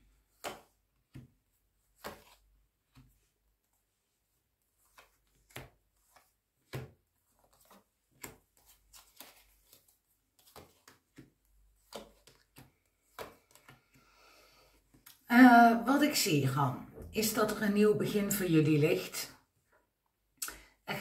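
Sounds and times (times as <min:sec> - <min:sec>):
cards tapping on a table: 0:10.4 - 0:13.9.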